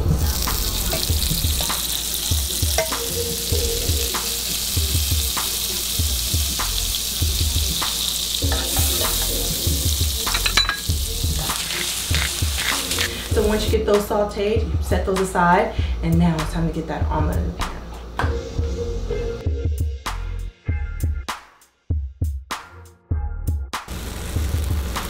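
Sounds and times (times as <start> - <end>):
vegetables sizzling in a pan: 0.0 - 13.8, 23.9 - 25.0
spatula clattering: 2.7 - 3.2, 7.8 - 9.3, 10.2 - 13.4.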